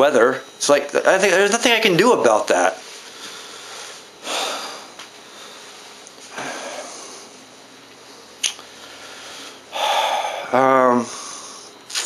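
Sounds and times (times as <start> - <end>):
man breathing close to microphone: 3.0 - 7.4, 8.2 - 11.8.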